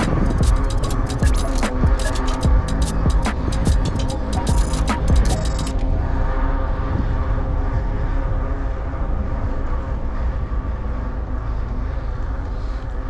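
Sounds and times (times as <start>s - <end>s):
bicycle road noise rumble: 0.0s - 13.0s
faint droning hum: 0.0s - 13.0s
wind noise: 0.0s - 13.0s.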